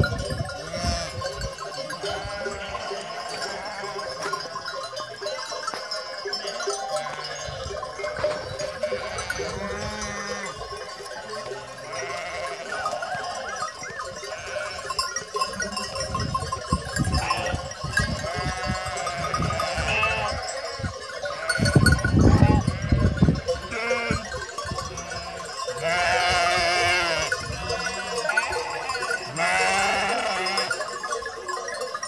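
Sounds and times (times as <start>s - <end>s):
sheep bleating: 0.6s - 1.2s, 1.8s - 4.3s, 6.9s - 7.6s, 8.6s - 10.6s, 11.4s - 13.6s, 14.3s - 15.0s, 17.1s - 17.6s, 18.2s - 20.6s, 21.3s - 23.1s, 23.7s - 24.3s, 25.0s - 30.7s.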